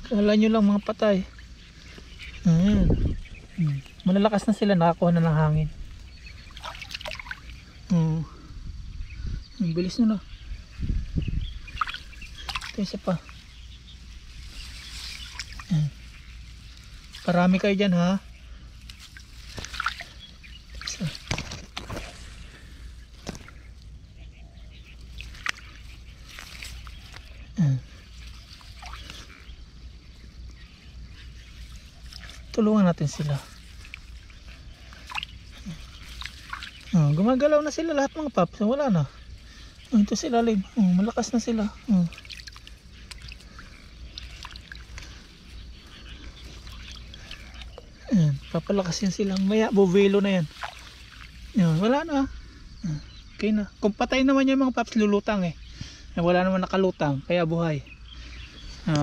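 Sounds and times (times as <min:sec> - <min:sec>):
lake water sloshing: 0:00.0 - 0:07.9, 0:11.5 - 0:53.3
small sharp splashes: 0:05.9 - 0:07.7, 0:11.6 - 0:17.7, 0:18.8 - 0:23.8, 0:24.9 - 0:27.4, 0:28.0 - 0:37.3, 0:39.4 - 0:52.0
small ticks: 0:24.9 - 0:27.4, 0:41.9 - 0:49.6.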